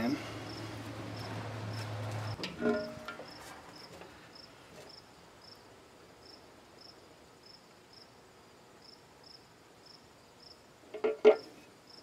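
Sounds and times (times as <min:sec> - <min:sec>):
cricket chirping: 0:00.1 - 0:10.7, 0:11.4 - 0:12.0
low background hiss: 0:02.4 - 0:12.0.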